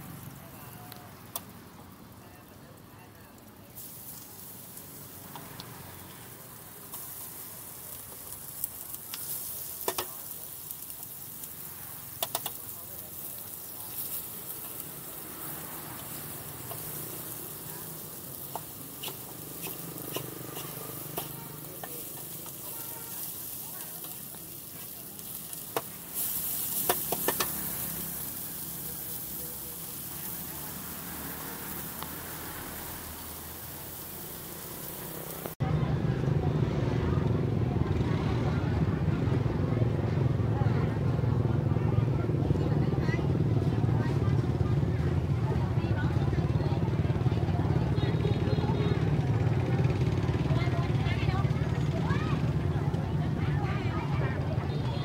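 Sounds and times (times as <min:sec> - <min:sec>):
vegetables sizzling in a wok: 0:00.0 - 0:35.6, 0:42.3 - 0:55.0
metal spatula scraping a wok: 0:13.9 - 0:29.3.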